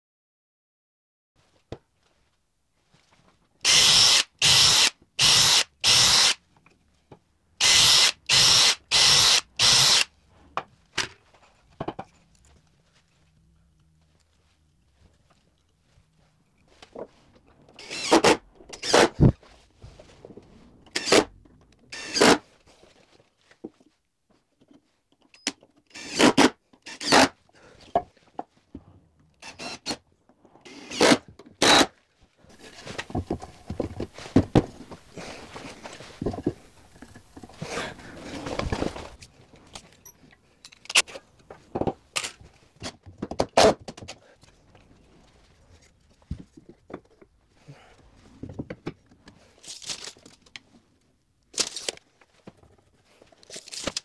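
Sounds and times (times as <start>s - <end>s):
wood and tools knocking: 32.9s - 35.1s.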